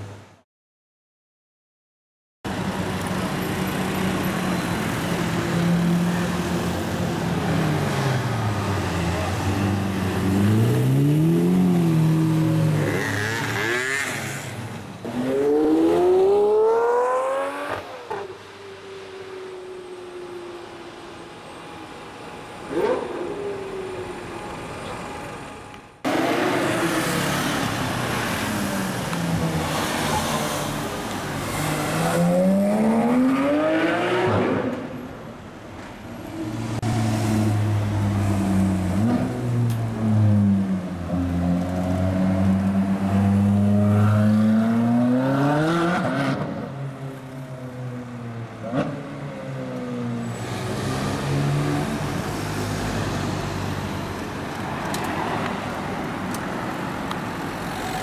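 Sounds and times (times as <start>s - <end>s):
passing traffic: 2.5s - 58.0s
car engines accelerating hard: 26.0s - 35.0s.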